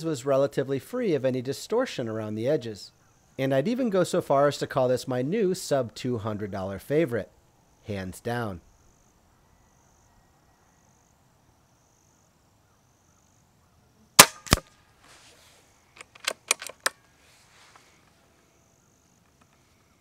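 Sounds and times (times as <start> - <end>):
air rifle shot crack: 14.2 - 14.7
fainter echo crack: 14.2 - 14.8
metallic clicks of rifle action: 16.0 - 17.0.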